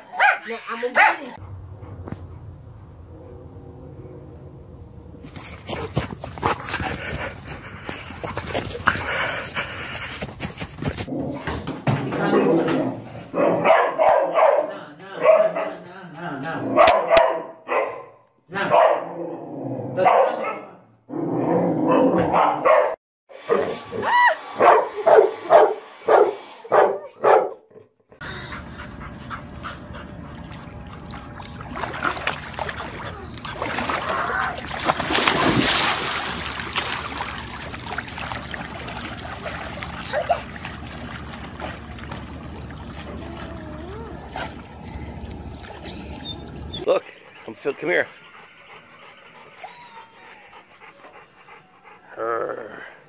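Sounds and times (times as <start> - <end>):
dog barking: 0.1 - 1.4, 13.3 - 15.8, 16.7 - 19.1, 20.0 - 20.8, 21.9 - 23.7, 24.6 - 27.6
faint pool water splashing: 5.2 - 10.6, 28.2 - 48.0.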